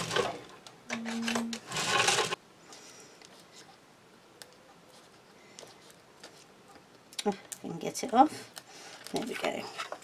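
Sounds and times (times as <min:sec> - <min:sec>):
rustling and scraping of papers: 0:00.0 - 0:03.8, 0:04.9 - 0:06.8.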